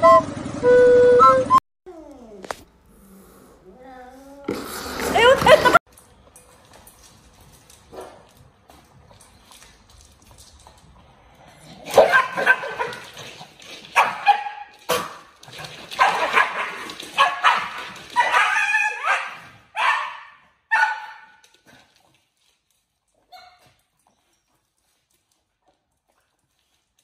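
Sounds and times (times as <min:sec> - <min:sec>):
dogs barking and yapping: 0:07.6 - 0:08.6, 0:11.8 - 0:21.9, 0:23.2 - 0:24.4.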